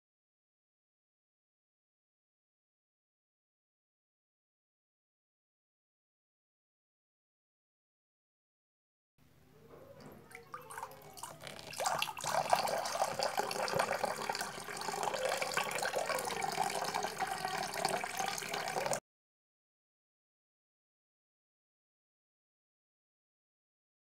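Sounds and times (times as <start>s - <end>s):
water pouring into glass: 10.1s - 19.0s.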